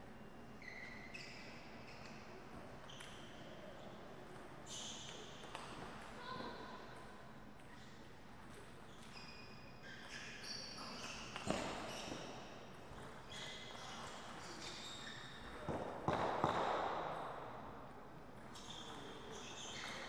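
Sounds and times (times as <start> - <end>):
shoes squeaking on floor: 0.6 - 2.2, 8.9 - 15.8, 18.4 - 20.0.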